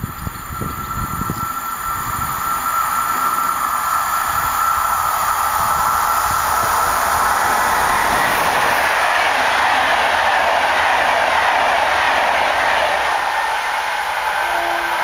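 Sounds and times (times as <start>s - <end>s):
high ringing tone: 0.0s - 7.8s
wind buffeting microphone: 0.0s - 14.0s
train rail and wheel noise: 0.0s - 15.0s.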